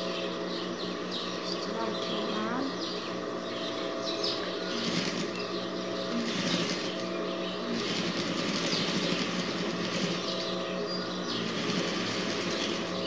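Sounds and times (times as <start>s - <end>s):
sewing machine stitching: 4.7s - 5.4s, 6.1s - 7.1s, 7.7s - 10.5s, 11.3s - 13.0s.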